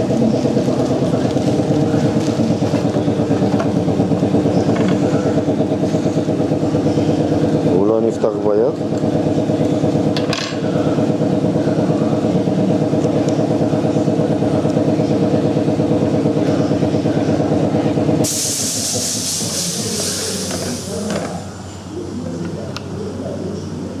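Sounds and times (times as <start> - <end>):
air compressor pulsing hum: 0.0 - 24.0
air venting hiss: 18.2 - 21.6.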